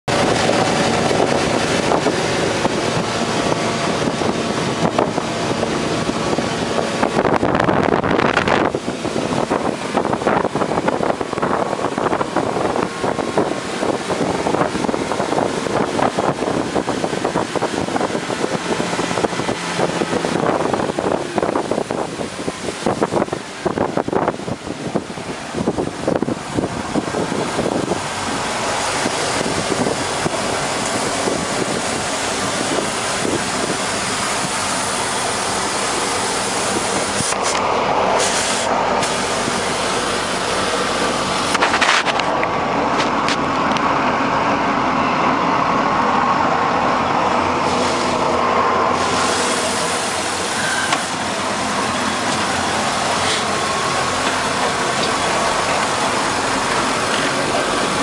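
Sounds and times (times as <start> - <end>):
boat engine running: 0.0 - 58.0.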